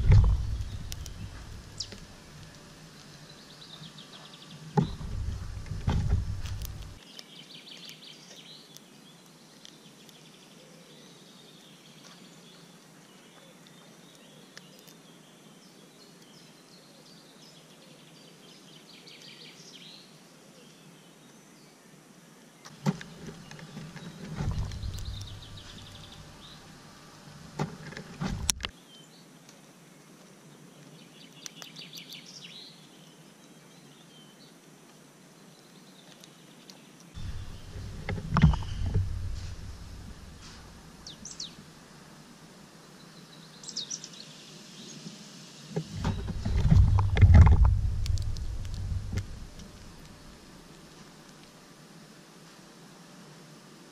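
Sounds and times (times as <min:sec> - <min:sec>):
rumbling and bumps near microphone: 0:00.0 - 0:02.5, 0:04.8 - 0:07.0, 0:22.8 - 0:26.6, 0:27.5 - 0:28.7, 0:37.2 - 0:41.2, 0:45.8 - 0:50.4
songbirds singing: 0:00.0 - 0:34.6, 0:35.3 - 0:51.0.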